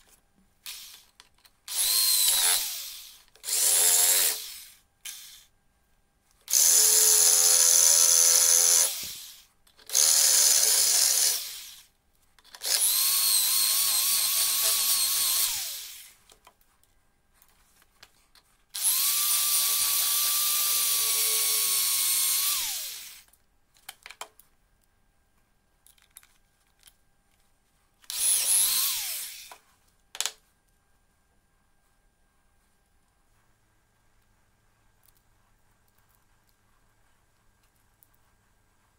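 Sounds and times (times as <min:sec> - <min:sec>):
electric drill whining: 0:00.7 - 0:01.0, 0:01.7 - 0:05.5, 0:06.5 - 0:11.9, 0:12.6 - 0:16.2, 0:18.8 - 0:23.3, 0:28.1 - 0:29.6.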